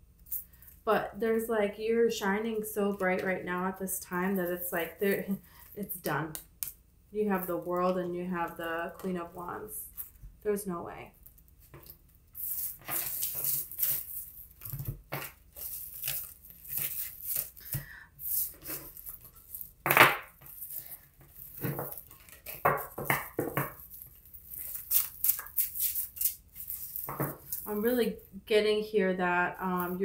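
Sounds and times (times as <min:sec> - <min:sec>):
cards shuffling: 0:11.7 - 0:27.9.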